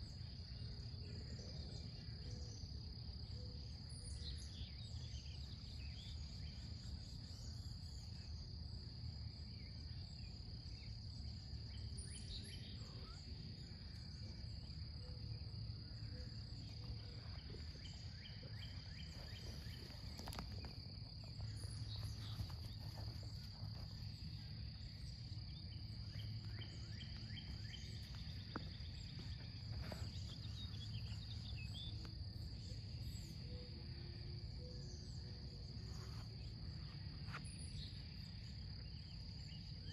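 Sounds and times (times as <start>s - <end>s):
insects trilling: 0.0s - 39.9s
faint bird chirps: 9.5s - 39.9s.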